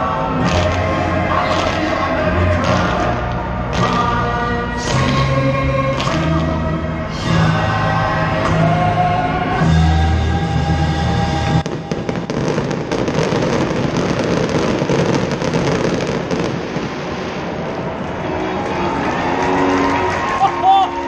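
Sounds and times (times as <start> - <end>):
fireworks crackling and banging: 0.0 - 6.6, 11.2 - 18.5
music with steady bass: 0.0 - 14.4.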